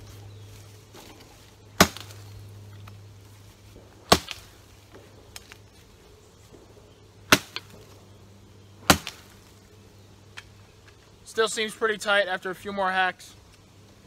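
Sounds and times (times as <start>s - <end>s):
shovel chopping wooden log: 1.8s - 2.2s, 4.1s - 4.5s, 7.3s - 7.8s, 8.8s - 9.3s.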